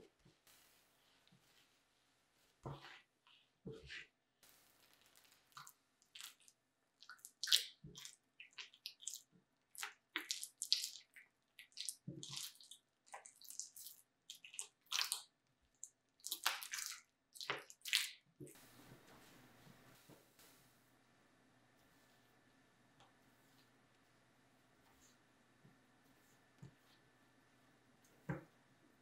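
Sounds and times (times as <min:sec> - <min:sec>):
dough squeezing and tearing: 0:00.0 - 0:18.6.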